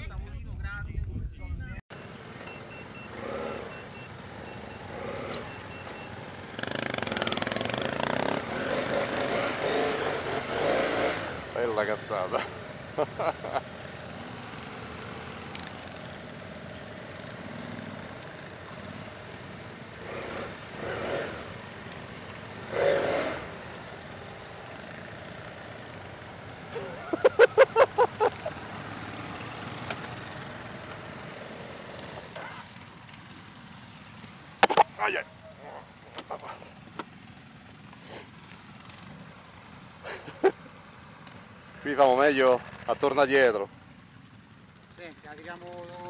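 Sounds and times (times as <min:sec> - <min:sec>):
motorcycle engine idling: 0:02.1 - 0:10.6.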